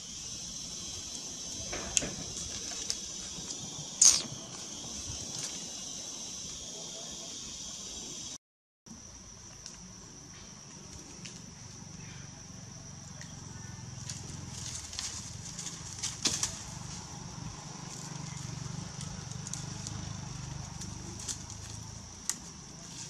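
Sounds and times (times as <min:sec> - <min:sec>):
high-pitched insect drone: 0:00.0 - 0:08.4, 0:10.8 - 0:23.0
dry leaves crackling and rustling: 0:00.9 - 0:03.6, 0:13.9 - 0:23.0.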